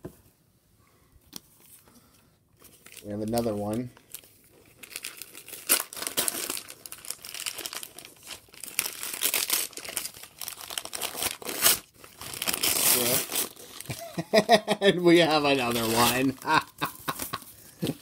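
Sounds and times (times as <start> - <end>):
sharp paper crackle: 2.6 - 14.0, 15.4 - 17.4
wrapping paper crumpling and tearing: 2.6 - 14.2, 15.3 - 17.4.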